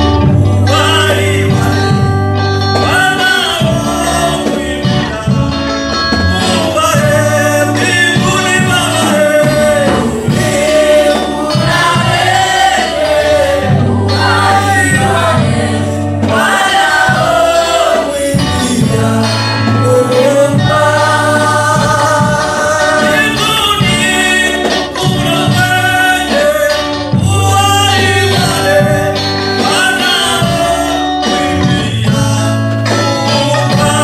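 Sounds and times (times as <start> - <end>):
women singing gospel: 0.0 - 5.5, 6.3 - 34.0
electric guitar: 0.0 - 34.0
low bass notes: 0.0 - 34.0.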